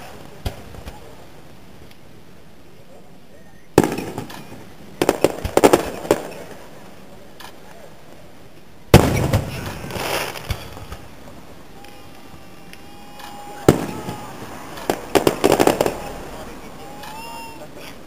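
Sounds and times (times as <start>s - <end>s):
firework pops and crackles: 0.0s - 2.1s, 3.7s - 12.0s, 12.7s - 17.3s
firework shells bursting: 3.8s - 6.6s, 8.9s - 17.6s.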